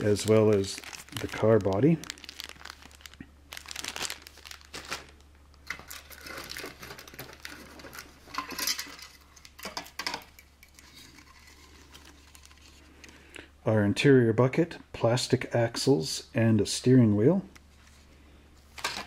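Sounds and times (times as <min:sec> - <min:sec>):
plastic bag crinkling: 0:00.0 - 0:09.6.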